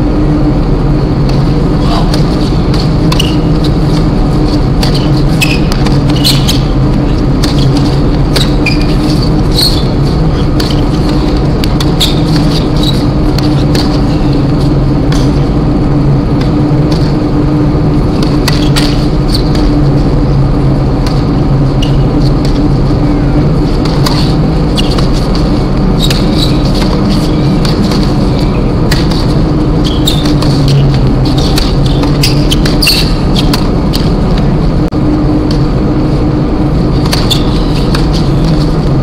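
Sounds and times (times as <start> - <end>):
loud steady low hum: 0.0 - 39.0
sneakers squeaking: 0.3 - 39.0
racket striking tennis ball: 1.2 - 14.5, 18.1 - 19.8, 23.6 - 34.1, 37.0 - 38.7.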